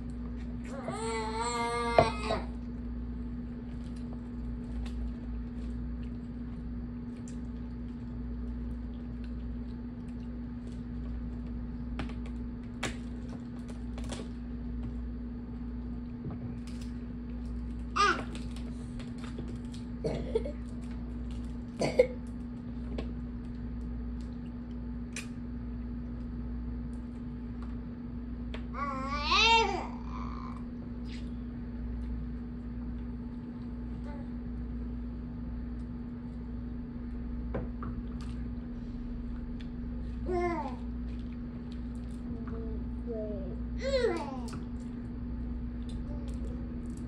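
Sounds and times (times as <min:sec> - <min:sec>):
steady hum: 0:00.0 - 0:47.0
crab shells cracking by hand: 0:25.1 - 0:25.4.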